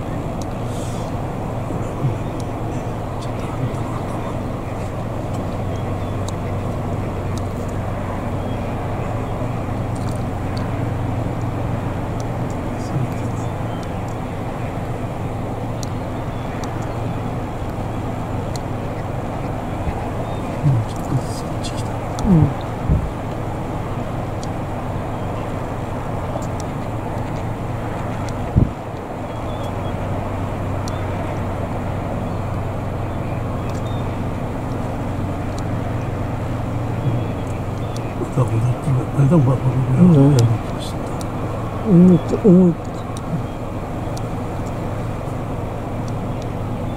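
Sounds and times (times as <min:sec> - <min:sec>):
distant road traffic rumble: 0:00.0 - 0:46.9
faint high ticks: 0:00.3 - 0:00.7, 0:09.7 - 0:15.0, 0:26.3 - 0:29.9, 0:30.8 - 0:31.4, 0:33.6 - 0:38.1, 0:40.2 - 0:46.6
light hiss: 0:00.4 - 0:01.2.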